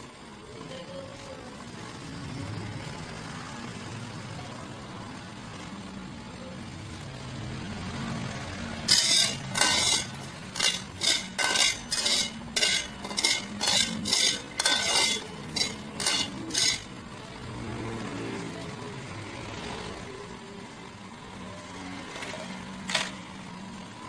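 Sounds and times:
metal spatula scraping a steel pot: 8.9 - 17.0.

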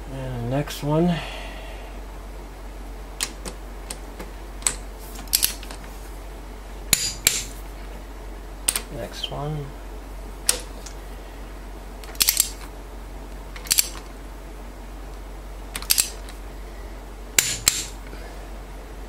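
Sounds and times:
socket wrench clicking on bolts: 12.0 - 12.6, 13.6 - 14.0, 15.8 - 16.3, 17.4 - 17.9.

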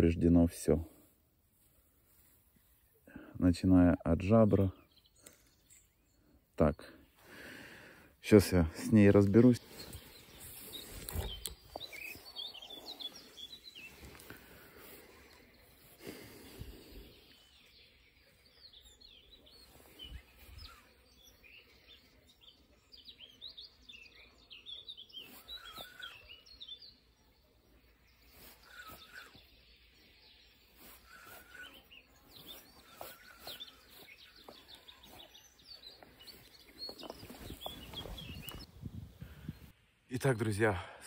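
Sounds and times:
songbirds chirping and trilling: 0.0 - 41.0.

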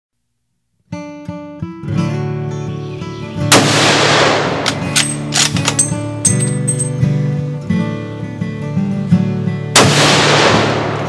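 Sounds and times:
acoustic guitar music: 0.9 - 3.6, 4.5 - 9.8
loud gunshot: 3.5 - 4.9, 9.8 - 11.0.

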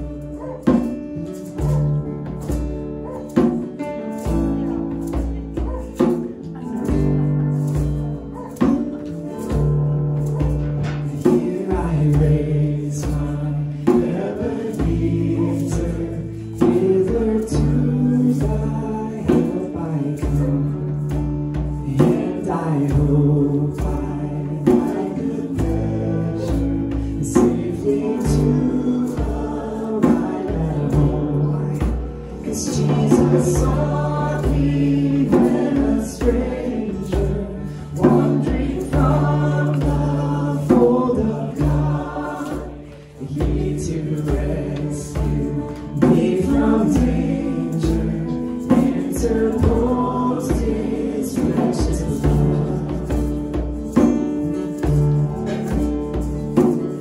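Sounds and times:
acoustic guitar: 0.0 - 57.0
voices singing together: 8.4 - 57.0.

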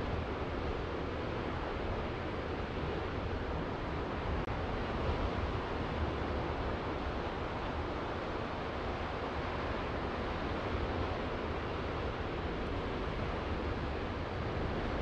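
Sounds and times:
rough sea surf: 0.0 - 15.0
wind rumbling on microphone: 0.0 - 15.0.

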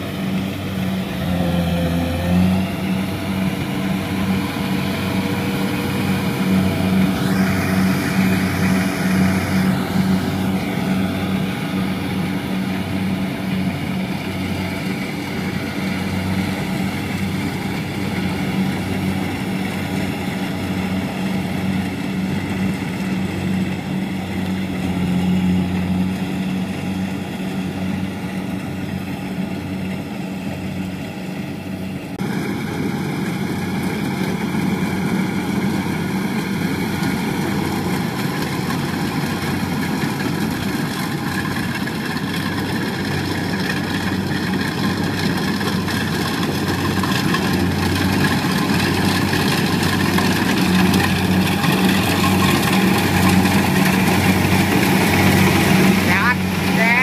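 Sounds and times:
diesel engine running: 0.0 - 57.0
threshing clatter: 32.2 - 57.0.

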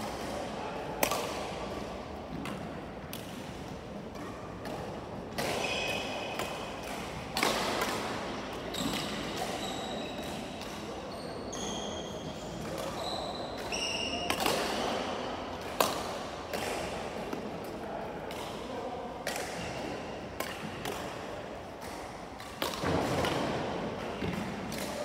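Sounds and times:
rackets hitting shuttlecock: 0.0 - 11.0, 13.6 - 25.0
shoes squeaking on floor: 8.7 - 10.4, 11.0 - 14.3.

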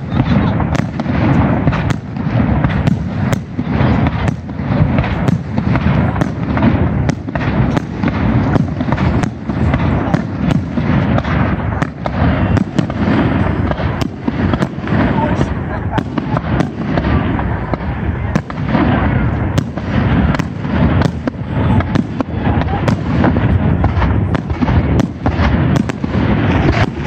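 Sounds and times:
fireworks bangs: 0.0 - 27.0.

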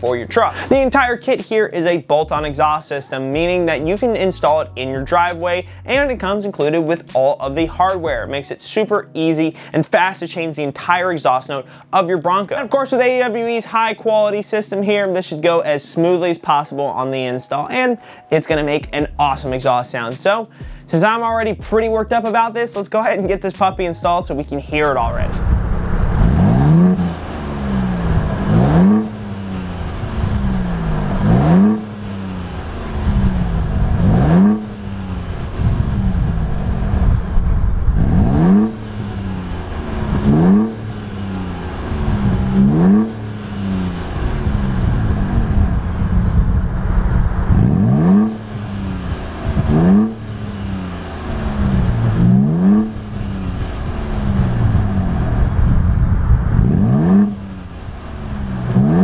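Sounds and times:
car engine revving: 24.7 - 59.0.

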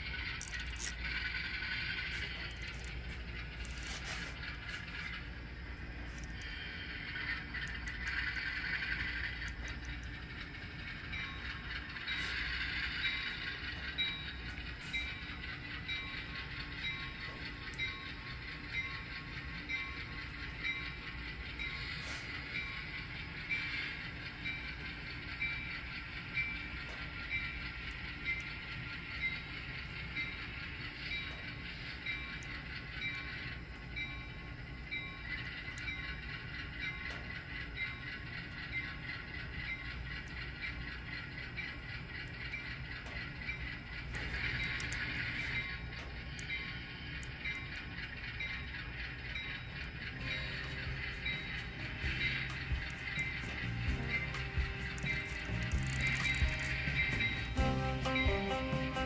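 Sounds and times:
model motor and gears whirring: 0.0 - 58.2
wheels clicking on track: 0.0 - 59.0
diesel engine rumble: 50.2 - 59.0
model motor whirring: 50.3 - 57.4.

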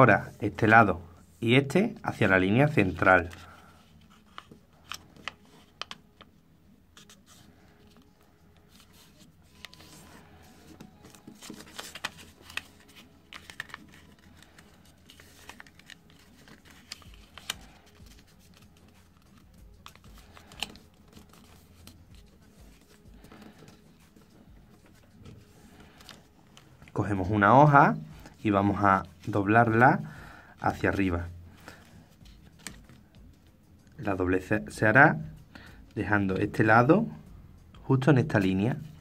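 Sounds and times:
paper rustling and crinkling: 2.2 - 6.4, 7.0 - 27.4, 28.0 - 33.3.

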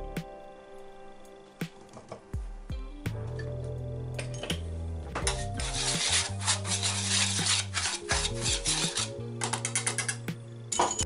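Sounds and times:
background music: 0.0 - 11.0
whisk scraping a metal pan: 5.2 - 10.3.

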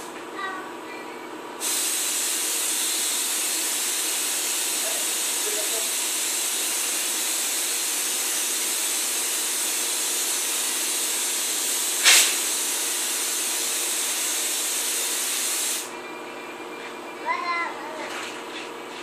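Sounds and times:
compressed air hissing: 1.6 - 15.9.

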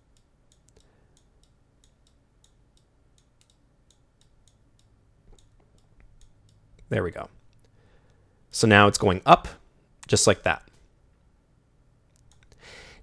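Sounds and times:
computer mouse clicking: 0.1 - 6.9.

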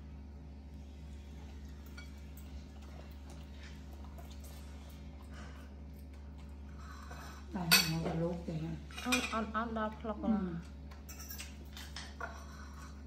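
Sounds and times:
steady low hum: 0.0 - 13.0
woman's voice: 7.5 - 10.8
cutlery clinking on plate: 11.0 - 12.6.

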